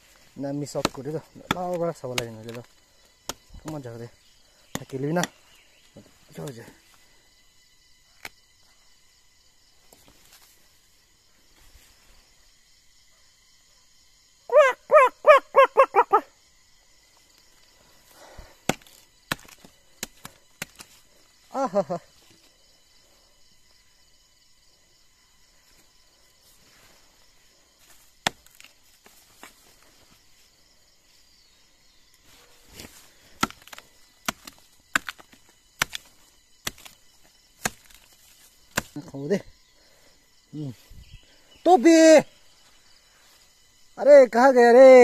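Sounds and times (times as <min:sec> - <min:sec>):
machete chopping log: 0:00.7 - 0:03.8, 0:18.6 - 0:21.0, 0:27.8 - 0:29.6, 0:32.8 - 0:39.1.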